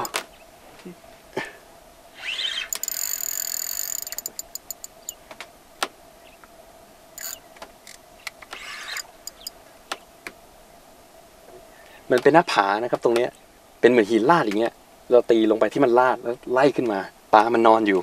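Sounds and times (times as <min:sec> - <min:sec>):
fishing reel drag clicking: 0:02.2 - 0:05.2, 0:07.2 - 0:07.4, 0:08.6 - 0:09.5.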